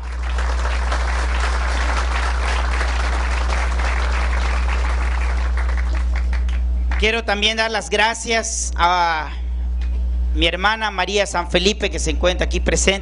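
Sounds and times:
audience applauding: 0.0s - 7.1s
low hum: 0.0s - 13.0s.

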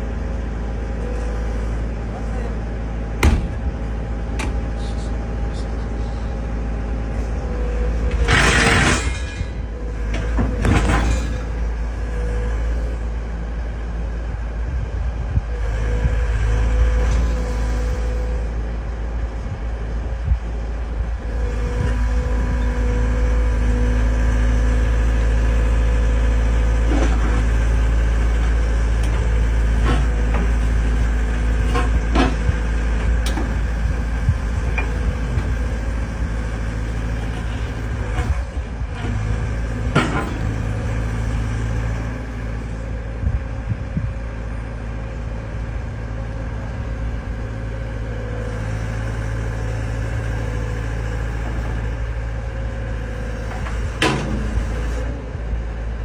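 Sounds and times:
excavator diesel engine rumbling: 0.0s - 56.0s.

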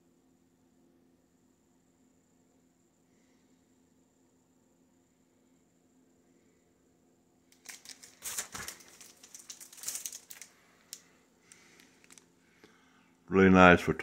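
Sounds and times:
picture frame rustling and clicking: 7.5s - 12.3s.

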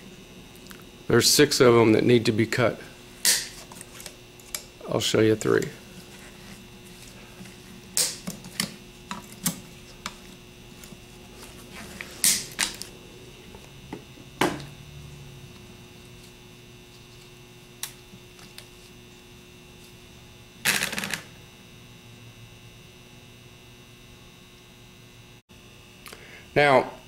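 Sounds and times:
side cutters snipping wire: 7.9s - 10.1s.

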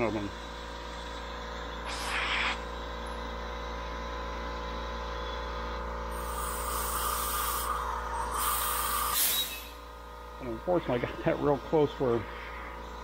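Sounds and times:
steady low hum: 0.0s - 13.0s
compressed air hissing: 1.8s - 2.7s, 6.1s - 9.9s.

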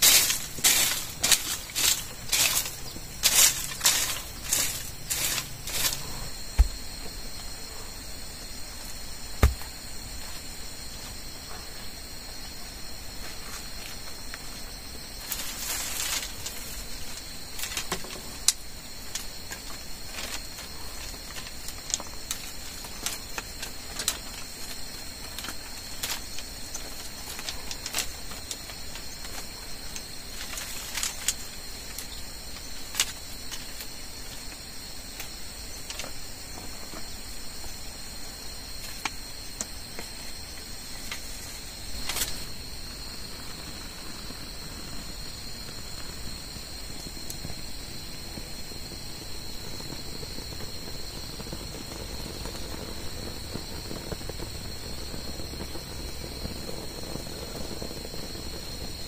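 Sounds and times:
rocks and sticks knocking: 0.0s - 7.3s, 9.4s - 9.9s
insects chirping: 0.0s - 59.0s
rock thumping down: 6.5s - 7.0s, 9.4s - 9.8s.

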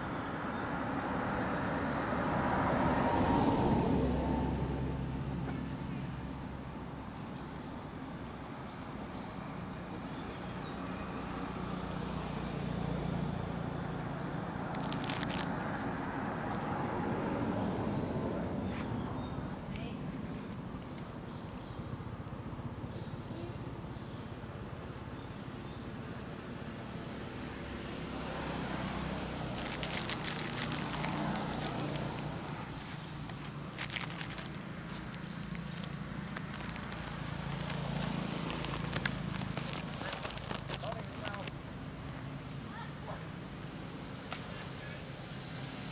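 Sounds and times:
faint high insect tones: 0.0s - 45.9s
footsteps on dry leaves: 14.7s - 15.5s, 29.3s - 42.2s
low outdoor rumble: 29.4s - 44.2s
short rustle: 29.5s - 41.6s.

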